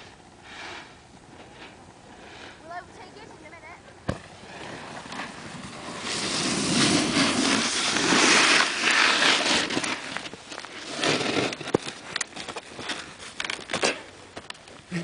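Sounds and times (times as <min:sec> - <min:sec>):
snow rubbing on microphone: 0:00.0 - 0:03.6, 0:04.3 - 0:12.1.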